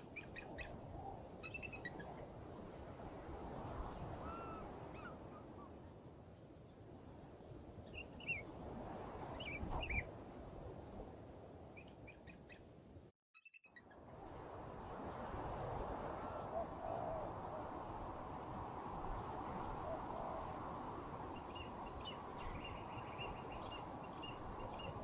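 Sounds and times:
wind buffeting microphone: 6.9s - 11.8s, 14.1s - 25.0s
small birds chirping: 21.4s - 25.0s.

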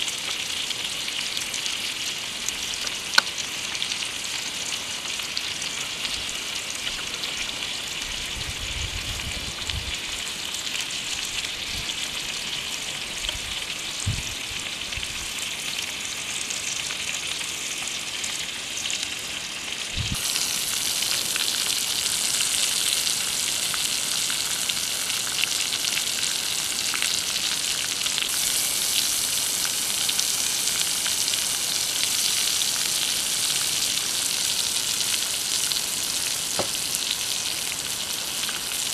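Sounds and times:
intestines sizzling on hot rock: 0.0s - 38.9s.

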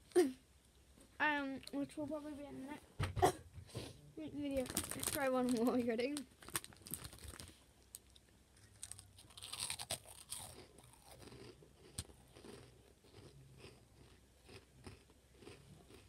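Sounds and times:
crisps crunched and chewed: 4.6s - 16.0s.

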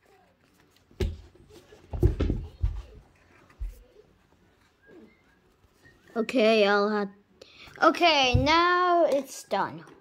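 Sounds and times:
dull thumps: 8.2s - 8.7s.

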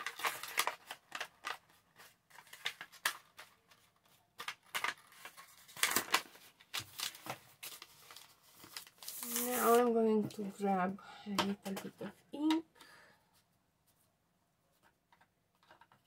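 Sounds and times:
paper rustling and clicks: 0.0s - 9.8s.

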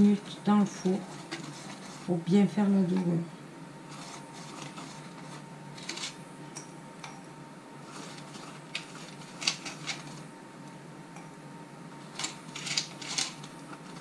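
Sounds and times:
faint room hum: 0.0s - 14.0s.

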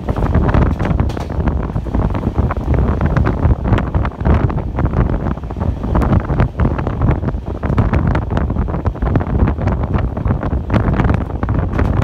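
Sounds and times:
wheels clattering on rails: 0.0s - 5.1s, 9.5s - 12.0s
train rumbling on track: 0.0s - 12.0s
wind buffeting microphone: 0.0s - 12.0s.

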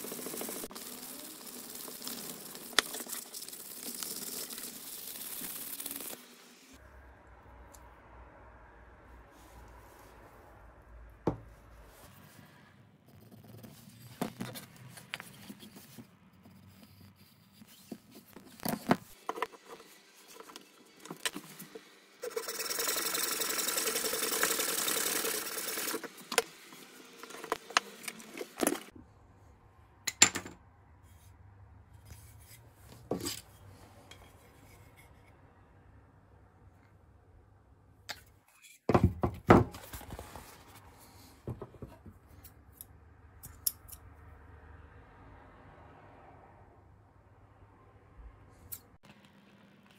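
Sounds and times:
hacksaw cutting wood: 22.2s - 26.4s
knocks of wood and tools handled: 41.4s - 42.2s.

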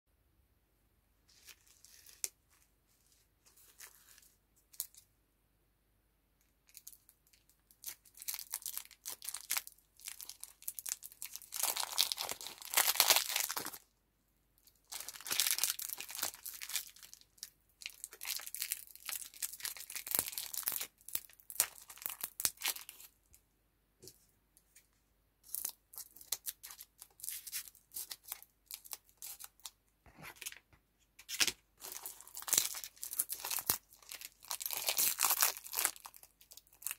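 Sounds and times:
wrapper tearing and crinkling: 6.7s - 13.8s, 14.9s - 17.2s, 17.8s - 23.1s, 31.4s - 36.9s.

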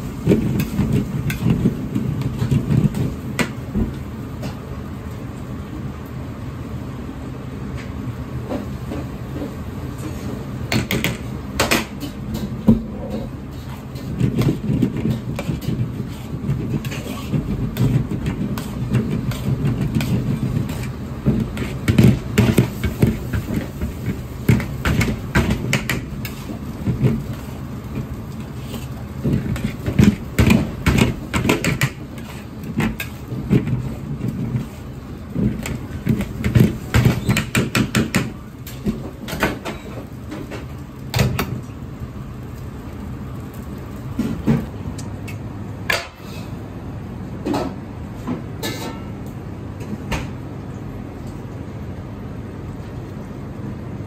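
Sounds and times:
utensil scraping wok: 0.0s - 3.2s, 11.8s - 40.6s
gas burner rumbling: 0.0s - 54.0s.

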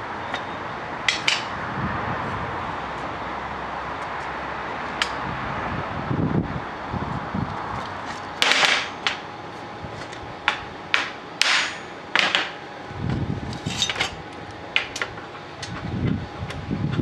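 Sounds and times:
hammer striking steel: 1.1s - 1.5s, 11.0s - 12.6s.

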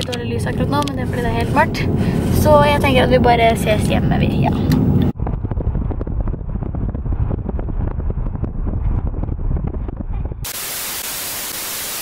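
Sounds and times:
road and engine rumble in car: 0.0s - 10.5s
static hiss: 10.5s - 12.0s.

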